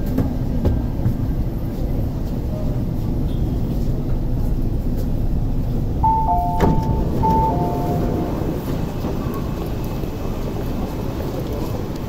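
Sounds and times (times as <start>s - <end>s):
train car rumble: 0.0s - 12.0s
two-tone door chime: 6.0s - 8.6s.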